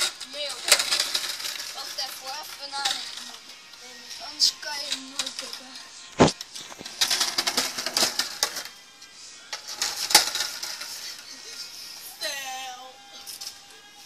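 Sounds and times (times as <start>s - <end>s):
skateboard clattering on tiles: 0.0s - 3.4s, 4.8s - 8.7s, 9.6s - 11.3s.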